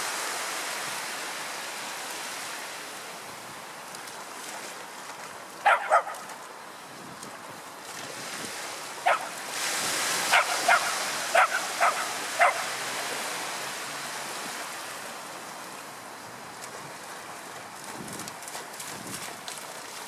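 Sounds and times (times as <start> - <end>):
small waves breaking on shore: 0.0 - 20.0
dog barking: 5.6 - 6.2, 9.0 - 9.4, 10.3 - 12.7.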